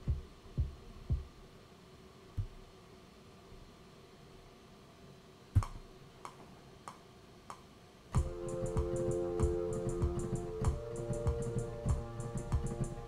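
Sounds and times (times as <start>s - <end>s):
programmed drum beat: 0.0s - 1.3s, 8.2s - 13.0s
sustained keyboard chord: 8.2s - 13.0s.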